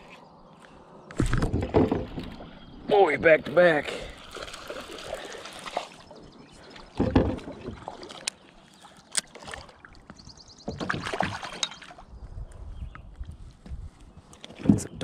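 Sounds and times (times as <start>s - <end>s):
fish thrashing and splashing: 4.0s - 8.4s, 10.6s - 12.0s.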